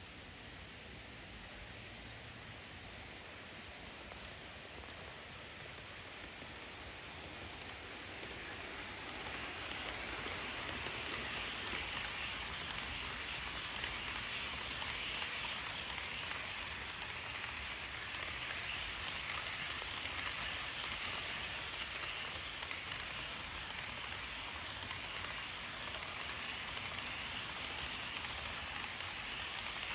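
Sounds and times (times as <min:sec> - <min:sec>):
model train wheels rattling: 0:03.7 - 0:29.9.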